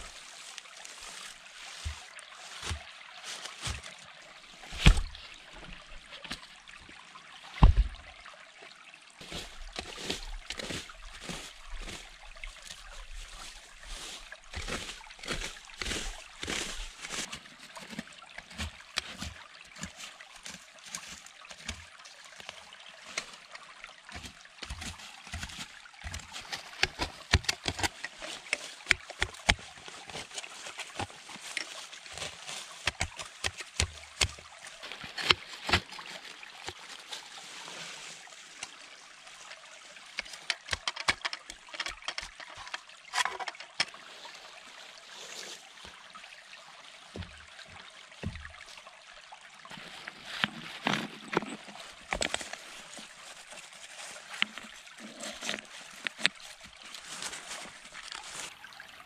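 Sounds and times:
hand tool digging in soil: 0.0 - 4.0, 9.2 - 23.4, 24.1 - 38.2, 40.2 - 44.0, 49.7 - 58.6.

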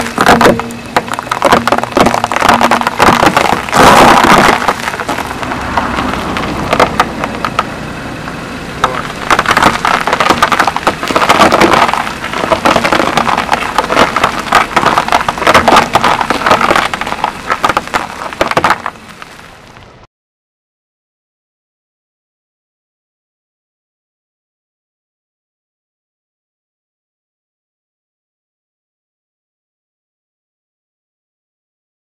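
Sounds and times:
tyre crushing brittle things: 0.0 - 7.7, 8.8 - 19.6.

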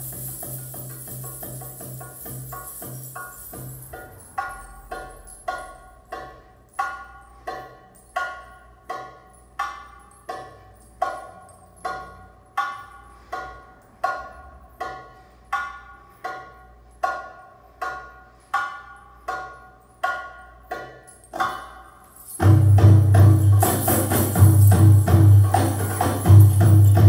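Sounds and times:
dense drum rhythm with jingling: 0.0 - 6.4, 22.2 - 27.0.

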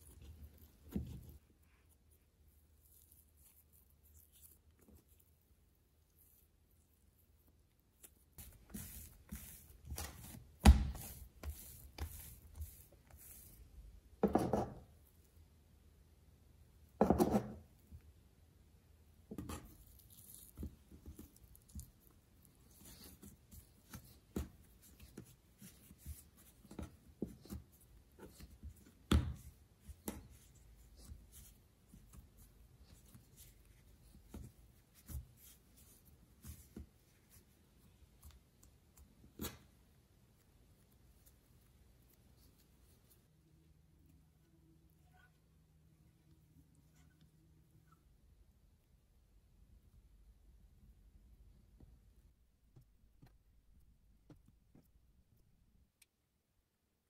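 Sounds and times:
hands kneading dough on wood: 0.0 - 15.2, 19.2 - 43.4, 51.7 - 55.8
dough thudding on table: 8.9 - 12.3.

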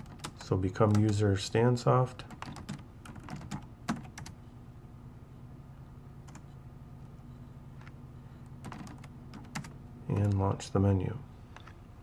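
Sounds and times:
steady low hum: 0.0 - 12.0
keyboard keystrokes: 2.3 - 4.4.

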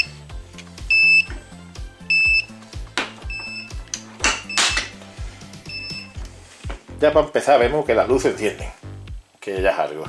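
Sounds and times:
remote control beeping: 0.0 - 0.2, 0.9 - 1.3, 2.0 - 2.5, 3.2 - 3.8, 4.4 - 4.9, 5.7 - 6.2
background music: 0.0 - 10.0.

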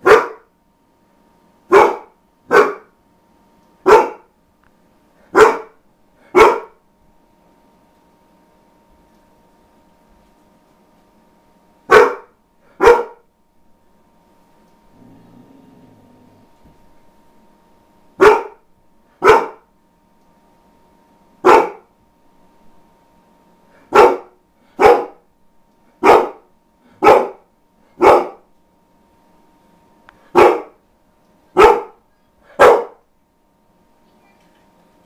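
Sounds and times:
dog barking: 0.0 - 0.5, 1.7 - 2.9, 3.8 - 4.3, 5.3 - 6.8, 11.9 - 13.2, 18.2 - 18.6, 19.2 - 19.6, 21.4 - 21.9, 23.9 - 25.2, 26.0 - 27.4, 28.0 - 28.4, 30.3 - 30.8, 31.6 - 32.0, 32.6 - 33.0.

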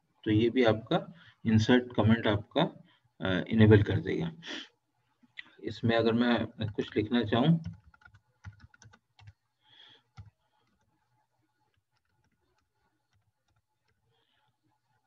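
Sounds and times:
keyboard keys clicking: 7.6 - 9.4.

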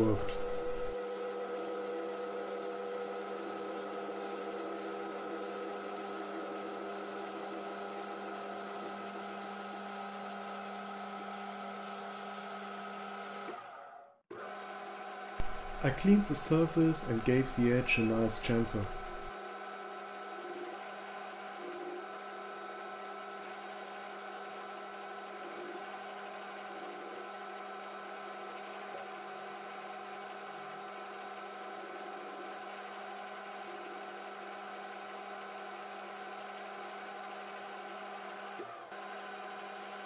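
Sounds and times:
metal lathe running: 0.0 - 9.8, 15.4 - 19.3.

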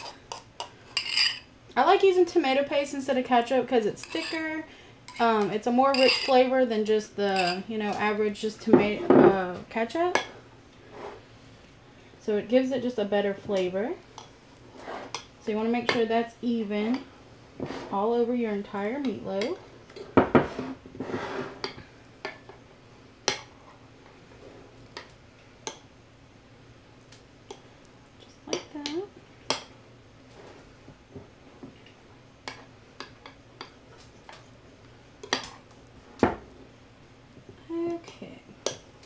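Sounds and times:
knife scraping: 0.0 - 1.5, 4.0 - 4.5, 5.1 - 6.4.

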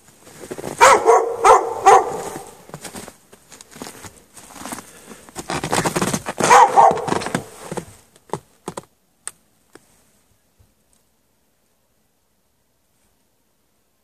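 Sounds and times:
dog barking: 0.8 - 2.6, 6.4 - 7.3.

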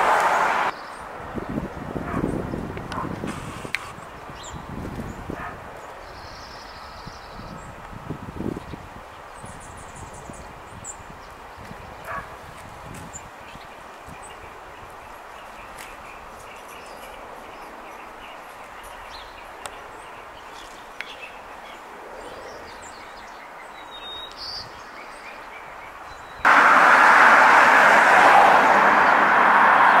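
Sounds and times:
loud steady rushing noise: 26.5 - 30.0.

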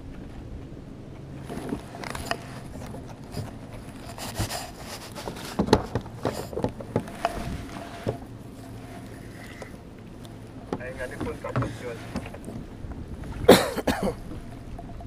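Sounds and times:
gear scraping and knocking: 1.4 - 12.7
fabric rubbing on microphone: 1.5 - 9.7.

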